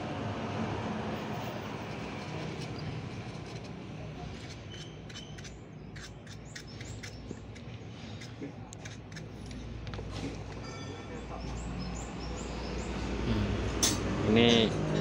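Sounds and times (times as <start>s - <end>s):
small birds chirping: 4.4s - 9.3s, 10.5s - 13.2s.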